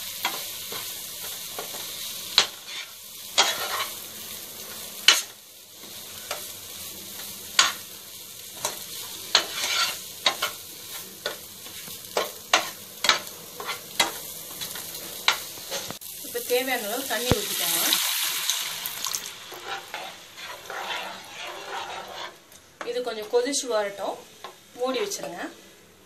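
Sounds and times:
frying mixture sizzling: 0.0s - 26.0s
metal spatula scraping a pan: 0.2s - 4.0s, 8.6s - 16.0s, 19.5s - 23.0s.

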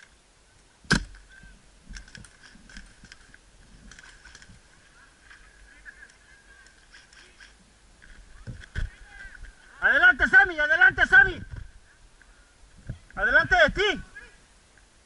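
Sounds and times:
faint clicks and ticks: 1.9s - 4.6s.

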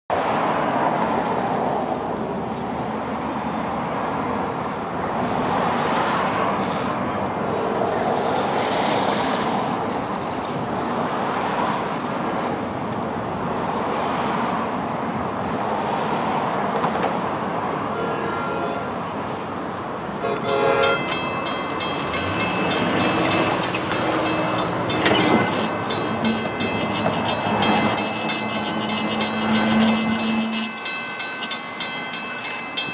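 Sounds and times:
cars passing close by: 0.1s - 32.9s
cars driving over railroad crossing: 3.1s - 32.9s.

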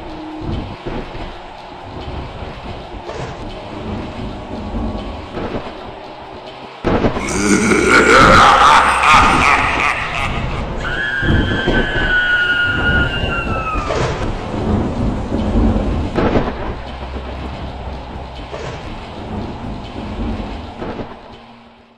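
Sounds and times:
steady rain: 0.0s - 21.9s
thunder rumbling and clapping: 7.9s - 21.4s.

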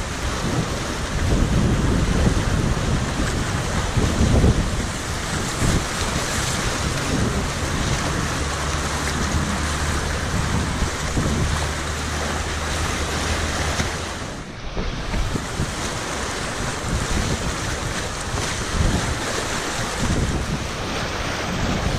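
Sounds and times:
whitewater rushing: 0.0s - 21.9s
wind rumbling on microphone: 0.0s - 21.9s.

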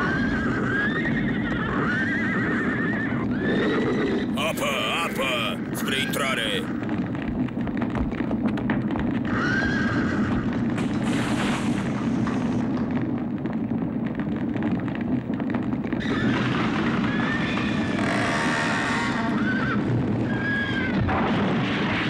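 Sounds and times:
horses whinnying: 0.0s - 6.5s, 9.2s - 10.7s, 16.0s - 21.2s
roar of fire: 0.0s - 22.0s.

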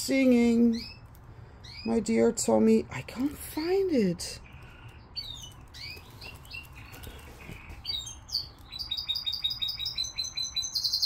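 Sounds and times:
pet bird chirping and singing: 0.4s - 2.2s, 4.2s - 11.0s.

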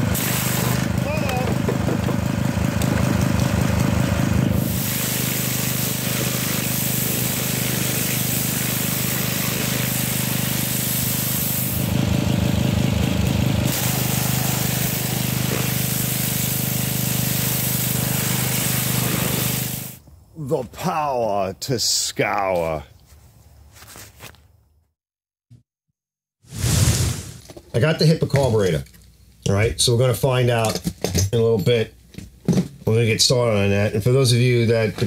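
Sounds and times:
water jet hissing: 0.0s - 1.6s, 4.5s - 11.9s, 13.6s - 20.0s
pressure washer engine running: 0.0s - 20.0s.

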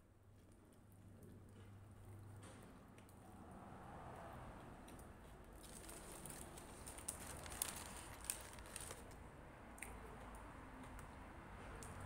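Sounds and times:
paper wrapper crinkling: 5.6s - 9.2s.

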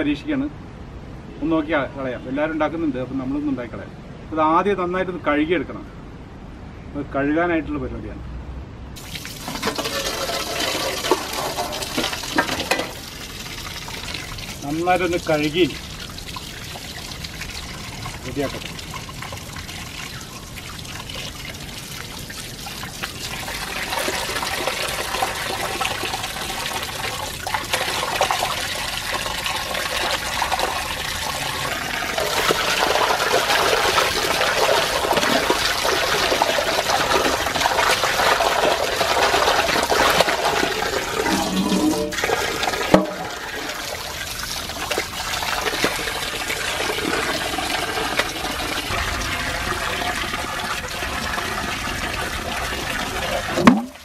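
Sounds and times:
tap water splashing into bowl: 9.0s - 13.0s, 41.2s - 43.6s, 53.5s - 54.0s.

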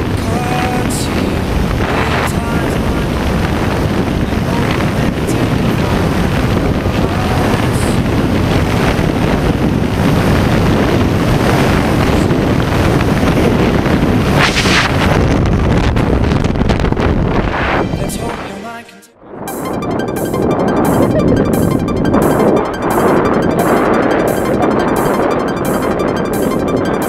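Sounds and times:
wind buffeting a microphone: 0.0s - 17.5s.

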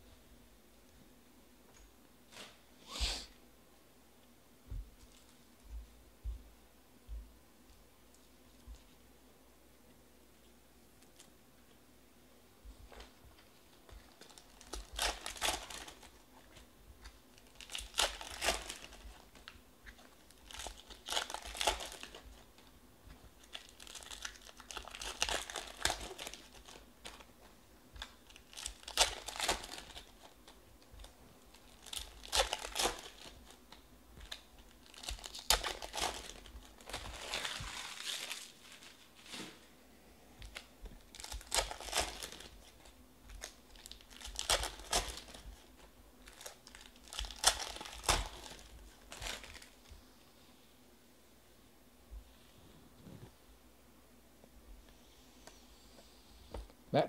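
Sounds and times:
card pack wrappers crinkling and tearing: 13.7s - 22.6s, 23.4s - 39.4s, 40.4s - 49.9s.

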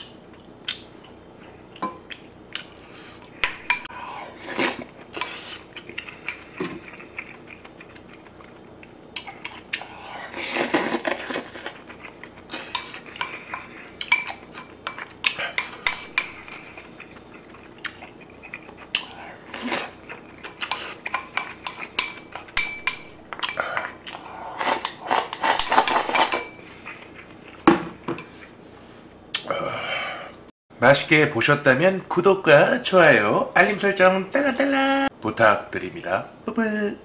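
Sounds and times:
utensils clicking against bowl and pot: 20.4s - 24.2s.

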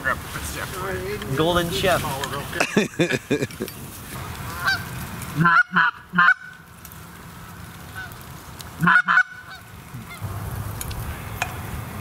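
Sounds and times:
geese honking: 4.4s - 6.6s, 7.4s - 8.2s, 8.8s - 10.2s.

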